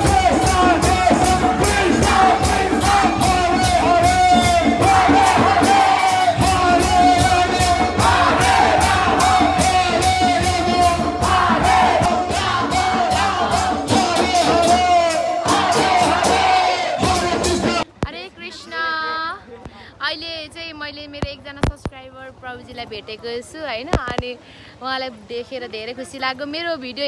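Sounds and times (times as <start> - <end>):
group devotional singing: 0.0 - 17.8
hand cymbals: 0.0 - 17.8.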